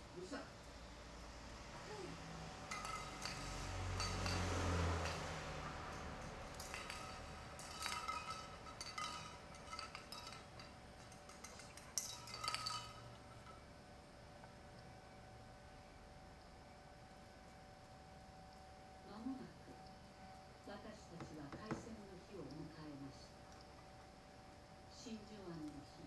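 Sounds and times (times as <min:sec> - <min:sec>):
glass bottle clinking on pavement: 0:02.7 - 0:13.6.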